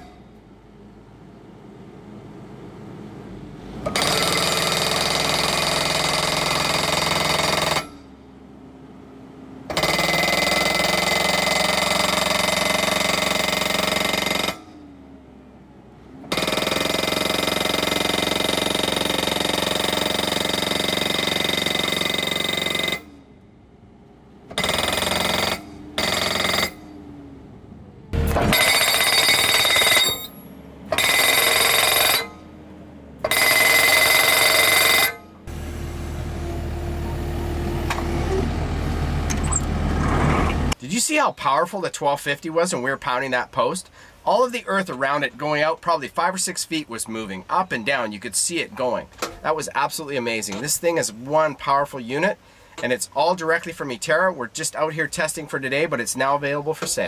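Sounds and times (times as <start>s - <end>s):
loader engine running: 0.0s - 40.8s.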